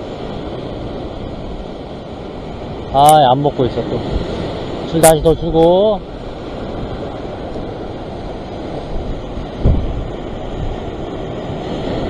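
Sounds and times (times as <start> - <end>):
surf breaking on rocks: 0.0 - 12.0
wind rumbling on microphone: 0.0 - 12.0
short low thump: 9.6 - 10.0.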